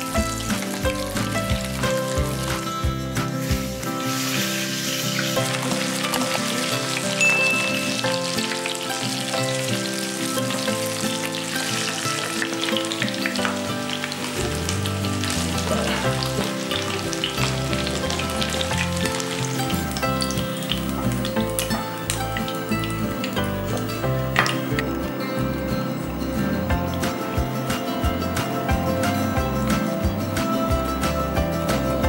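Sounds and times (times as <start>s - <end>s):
fish sizzling in hot oil: 0.0s - 32.0s.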